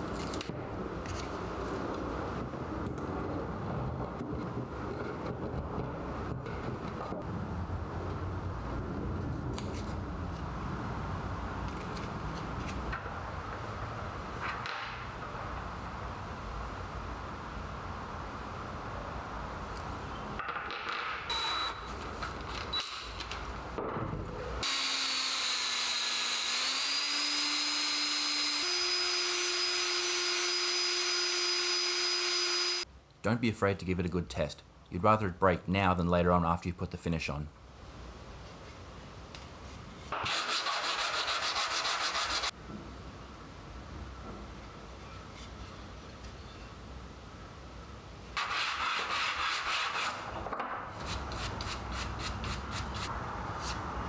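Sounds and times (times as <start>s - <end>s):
cordless drill motor whine: 24.6s - 32.8s
wood rubbing on sandpaper: 40.3s - 42.5s, 48.4s - 50.2s.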